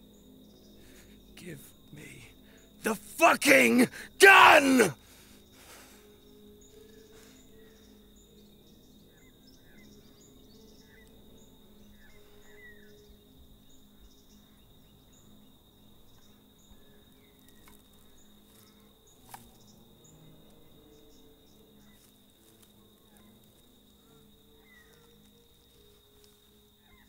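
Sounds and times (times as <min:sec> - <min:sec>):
insect drone: 0:00.0 - 0:27.0.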